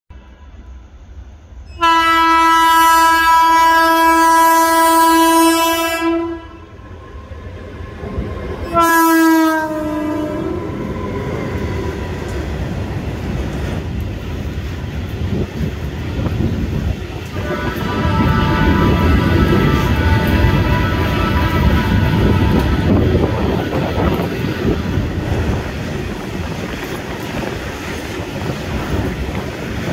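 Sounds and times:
locomotive horn blasts: 1.7 - 7.0, 8.6 - 11.9, 17.3 - 24.2.

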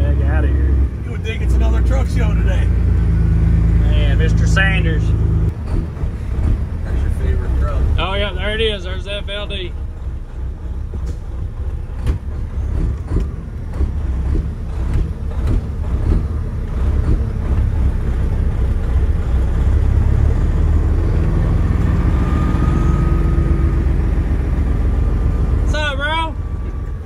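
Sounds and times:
diesel truck engine running: 0.0 - 27.0
cab rattles and clicks: 10.9 - 19.4.

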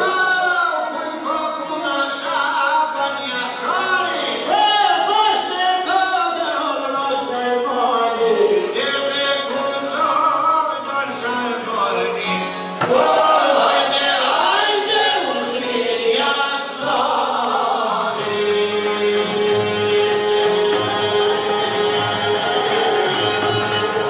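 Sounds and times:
men singing folk song: 0.0 - 24.0
plucked lute: 8.0 - 16.0, 16.6 - 24.0.

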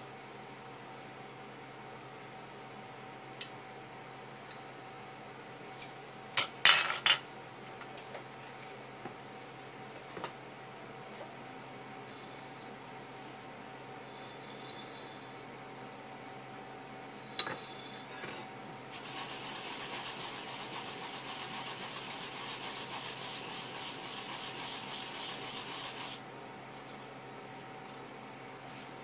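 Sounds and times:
root rasping on a grater: 18.9 - 26.2.

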